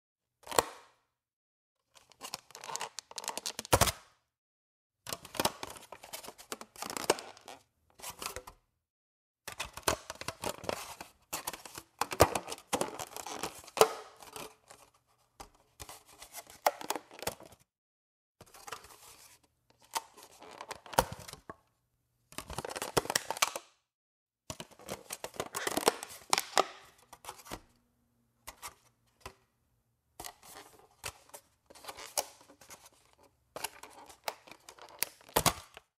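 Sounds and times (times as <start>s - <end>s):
plastic lid clicks and snaps: 22.4s - 23.7s, 25.4s - 27.0s
plastic container lid crinkling: 24.5s - 27.6s.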